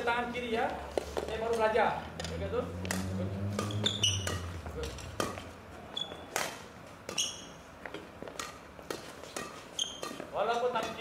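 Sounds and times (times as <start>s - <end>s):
racket hitting shuttlecock: 0.9s - 11.0s
sneaker squeaks on wooden floor: 3.6s - 6.4s, 7.1s - 7.7s, 9.5s - 10.3s.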